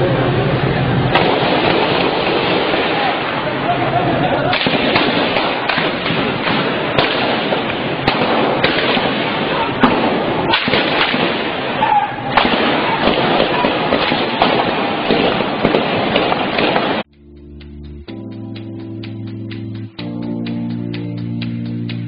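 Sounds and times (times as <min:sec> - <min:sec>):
voices: 0:00.0 - 0:15.8
noisy background: 0:00.0 - 0:22.0
dense crackle of sharp pops: 0:01.2 - 0:03.4, 0:04.5 - 0:17.1.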